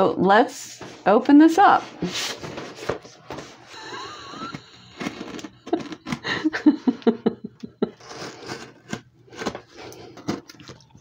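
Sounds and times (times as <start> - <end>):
cardboard handling scrapes: 1.8 - 3.7, 4.9 - 6.2, 7.9 - 10.4.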